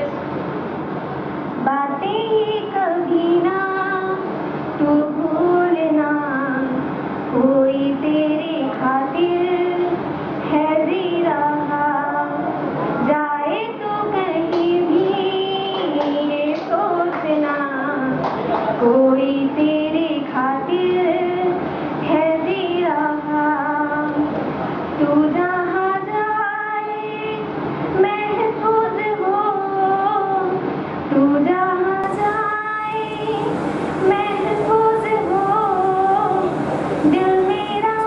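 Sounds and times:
woman singing: 1.6s - 4.2s, 4.8s - 12.4s, 13.0s - 18.2s, 18.8s - 24.3s, 25.0s - 38.0s.

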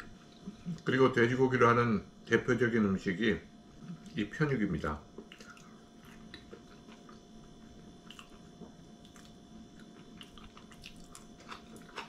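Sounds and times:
faint hum: 0.0s - 12.0s
person chewing: 5.1s - 12.0s.

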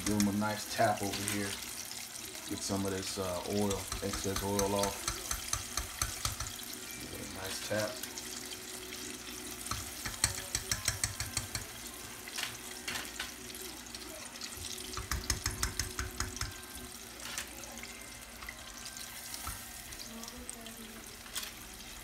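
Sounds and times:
wings sizzling in hot oil: 0.0s - 22.0s
metal tongs clicking and tapping: 3.6s - 6.6s, 9.7s - 11.7s, 14.9s - 16.6s.

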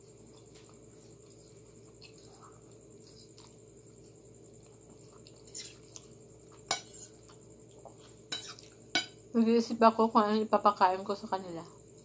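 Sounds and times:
chewing and slurping: 0.0s - 8.8s
fork scraping on plate: 5.4s - 6.0s, 6.7s - 7.2s, 8.3s - 9.1s.

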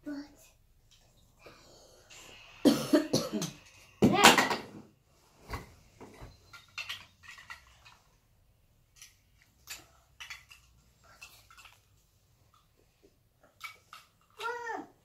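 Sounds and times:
plastic bricks clicking and clattering: 6.5s - 8.0s.

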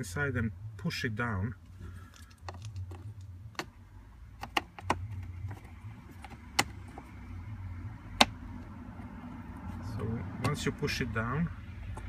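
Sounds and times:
low steady hum: 0.0s - 12.0s
glove compartment plastic clicks: 2.1s - 7.2s, 8.1s - 9.1s, 10.3s - 10.8s.

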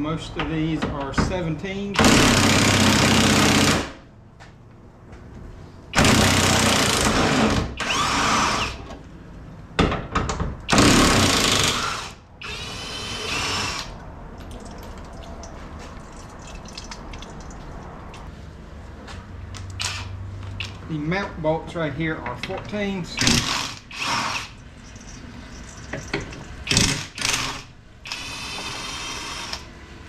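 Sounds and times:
power tool loosening bolts: 19.6s - 20.8s, 23.1s - 24.6s, 25.9s - 29.7s.

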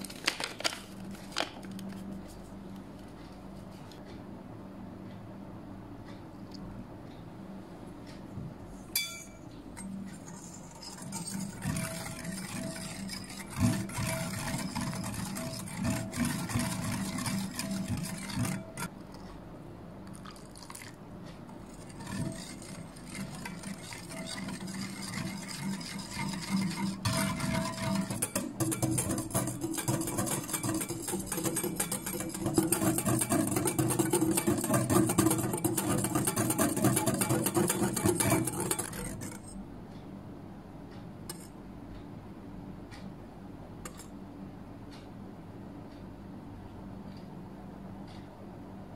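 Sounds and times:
whisk scraping glass bowl: 9.8s - 18.9s, 21.5s - 39.6s.

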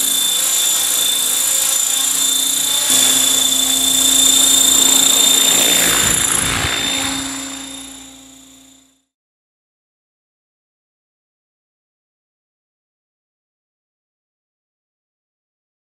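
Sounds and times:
rotor blades rushing: 0.0s - 9.0s
electric motor high whine: 0.0s - 9.1s.

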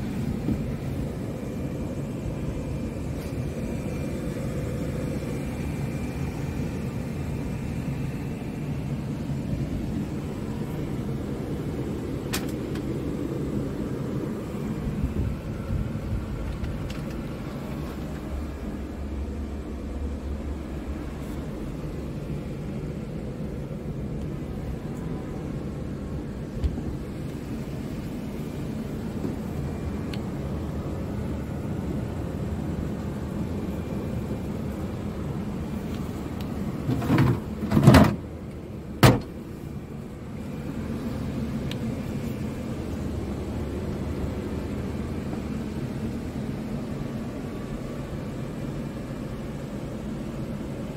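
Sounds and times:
truck engine idling: 0.0s - 50.9s.

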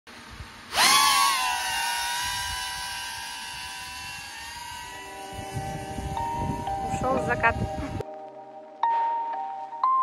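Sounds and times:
drone propellers whining: 0.7s - 8.0s
music: 5.0s - 10.0s.

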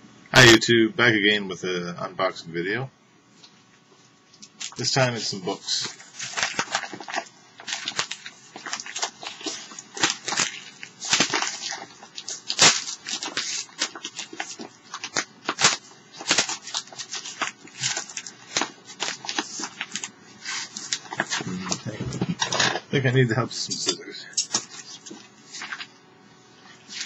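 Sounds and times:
padded envelope crinkling and tearing: 4.4s - 22.9s, 24.4s - 26.0s, 26.6s - 27.0s.

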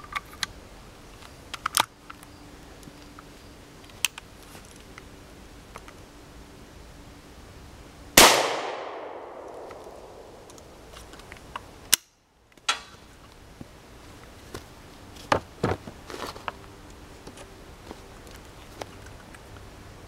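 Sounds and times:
gunshot with echo: 8.2s - 10.4s.

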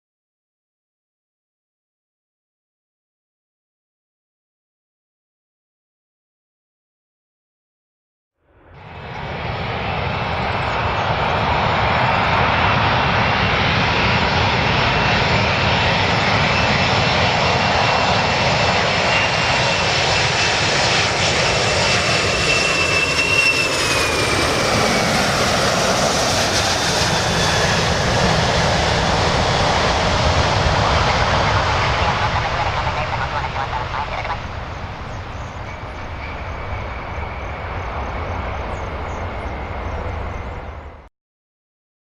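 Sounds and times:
jet airliner roar: 8.5s - 41.1s.

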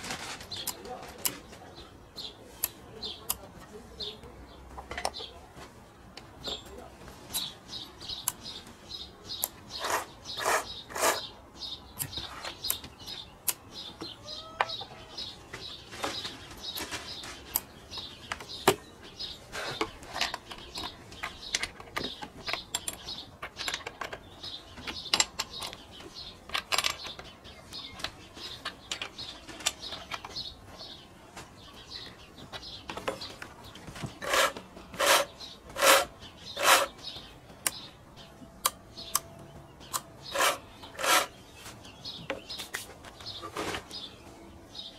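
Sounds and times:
rasping strokes along saw chain: 9.8s - 11.3s, 34.2s - 37.0s, 40.3s - 41.4s
metal clicks and scrapes: 34.2s - 37.0s, 39.9s - 41.4s.

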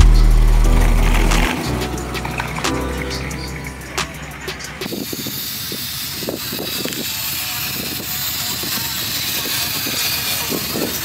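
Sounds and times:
indistinct voices talking: 0.0s - 6.4s
outdoor noise hiss: 0.0s - 11.0s.

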